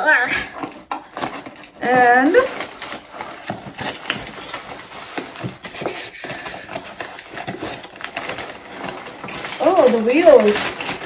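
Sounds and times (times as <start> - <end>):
cardboard crackling and scraping: 0.0 - 11.0
scissors cutting cardboard: 0.4 - 9.2.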